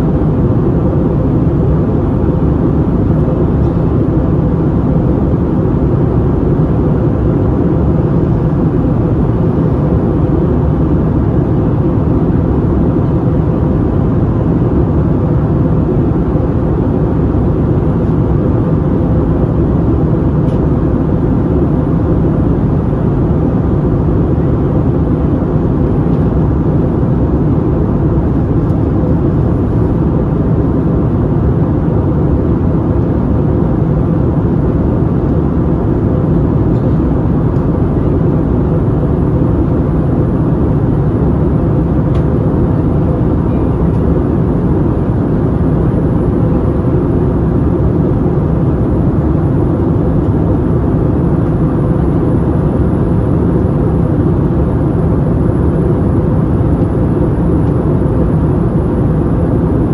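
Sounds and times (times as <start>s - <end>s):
airplane cabin engine rush: 0.0s - 59.9s
faint steady hum: 0.0s - 59.9s.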